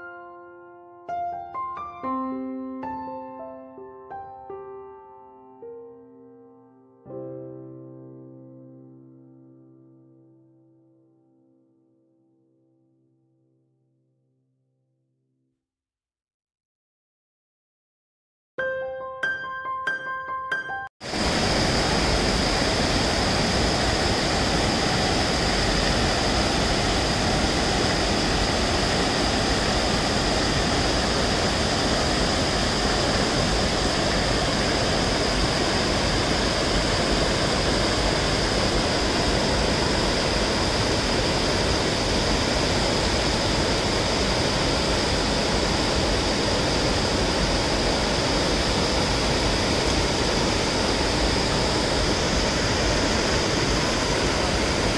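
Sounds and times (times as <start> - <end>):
water rushing over a weir: 21.0 - 54.9.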